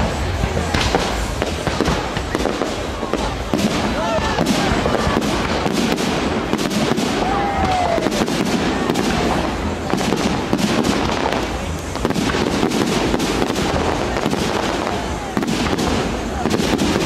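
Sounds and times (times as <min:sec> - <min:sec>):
continuous firework rumble: 0:00.0 - 0:17.0
firework shells bursting: 0:00.0 - 0:17.0.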